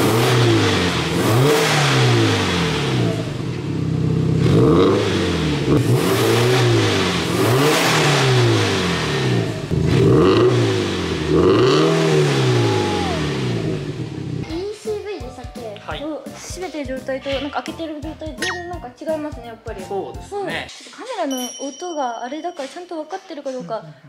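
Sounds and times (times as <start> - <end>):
car engine revving: 0.0 - 14.4.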